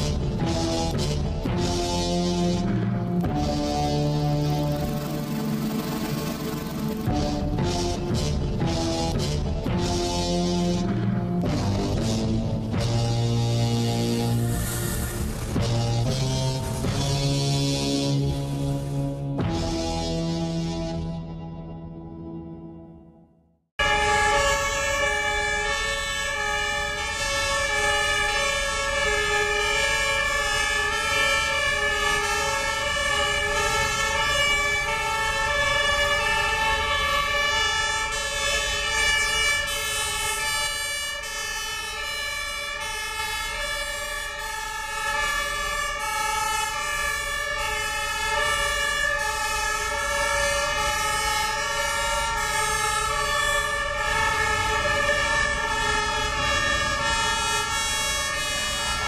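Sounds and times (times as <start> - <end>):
fire engine sirens wailing: 0.0 - 21.7, 23.8 - 59.0
truck engines rumbling: 23.9 - 59.0.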